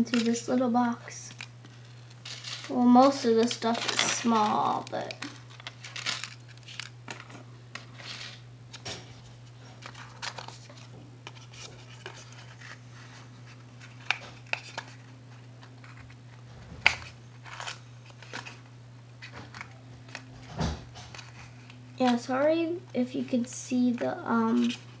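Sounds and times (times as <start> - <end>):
small items clicking and rustling: 0.0 - 9.1
steady low hum: 0.0 - 25.0.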